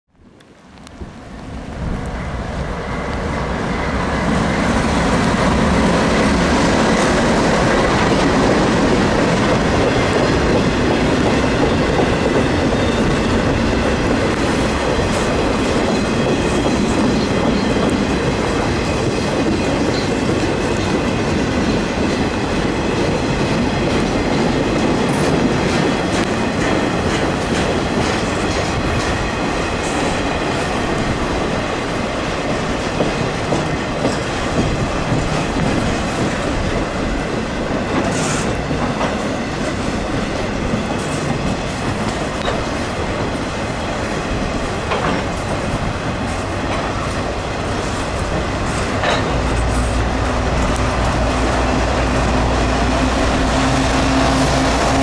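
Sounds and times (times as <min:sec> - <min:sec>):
freight train rumble: 0:00.2 - 0:55.0
wheels clattering over rail joints: 0:44.5 - 0:52.4.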